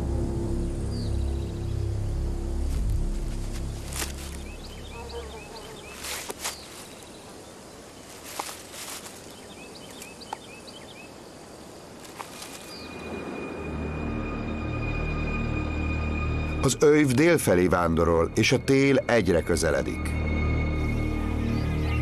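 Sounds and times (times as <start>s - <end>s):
steady background hiss: 0.0s - 14.8s
snaps or rustles: 2.7s - 4.5s, 5.9s - 6.9s, 8.1s - 9.3s, 12.0s - 12.8s.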